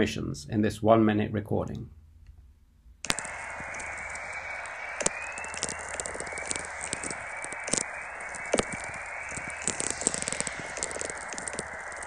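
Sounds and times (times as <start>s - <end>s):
sharp clicks: 3.0s - 12.0s
rising chorus tones: 3.1s - 12.0s
steady radio hiss: 3.1s - 12.0s.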